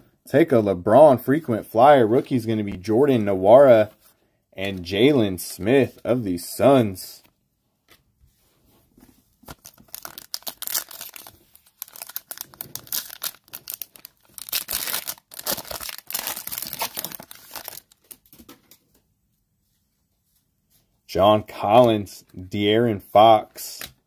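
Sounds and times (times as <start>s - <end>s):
plastic wrapper tearing and crinkling: 9.4s - 18.4s.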